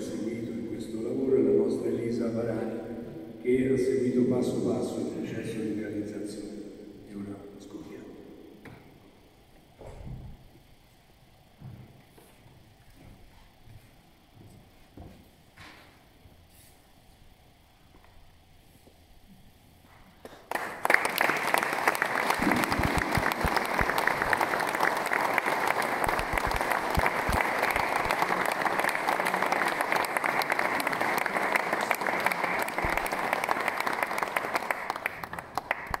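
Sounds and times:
audience applauding: 20.2 - 36.0.

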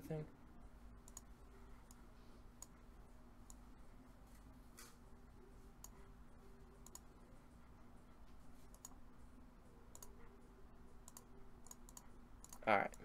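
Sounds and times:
faint steady hum: 0.0 - 13.0
computer mouse clicks: 1.0 - 2.0, 2.6 - 2.8, 3.4 - 3.6, 6.8 - 7.2, 8.6 - 9.0, 9.9 - 10.2, 11.0 - 13.0.

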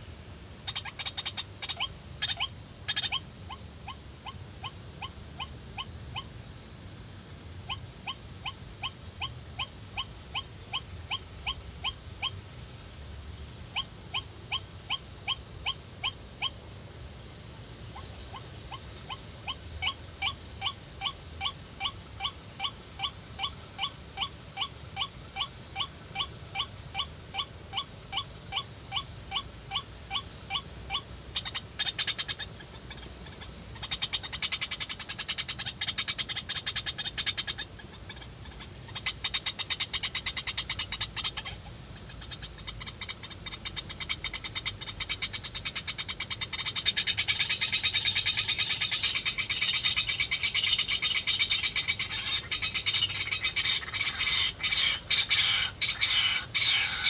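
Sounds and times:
bird harsh rapid chattering: 45.8 - 57.0.

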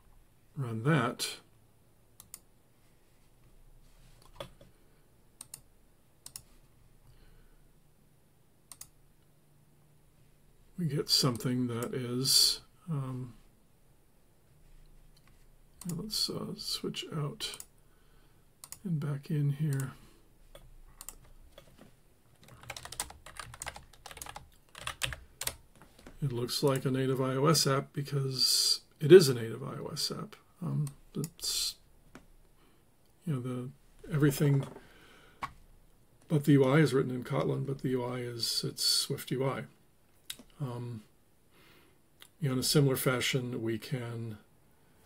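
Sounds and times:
computer clicks: 2.2 - 2.5, 5.4 - 6.5, 8.7 - 9.0, 18.6 - 18.8, 20.6 - 21.7, 22.4 - 25.6
keyboard typing: 4.2 - 4.7, 20.6 - 26.9.

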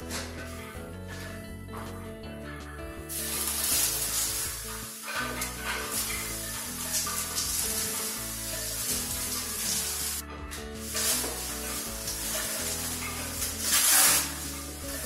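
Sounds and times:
background music: 0.0 - 15.0
plastic sheeting crinkling: 3.1 - 15.0.

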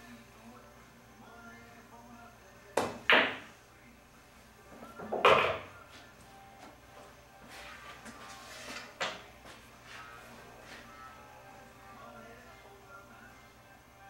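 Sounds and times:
cue striking ball: 2.8 - 3.5, 5.0 - 5.7
billiard balls clacking: 5.0 - 5.7.

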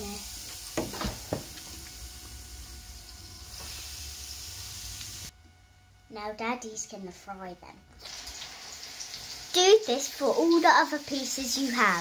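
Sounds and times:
hot oil sizzling: 0.0 - 5.3, 8.0 - 12.0.

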